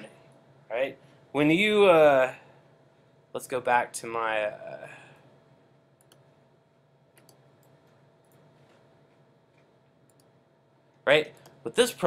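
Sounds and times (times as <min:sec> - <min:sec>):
steady low hum: 0:00.0 - 0:12.0
computer mouse clicks: 0:06.0 - 0:06.3, 0:07.2 - 0:10.4, 0:11.3 - 0:11.6.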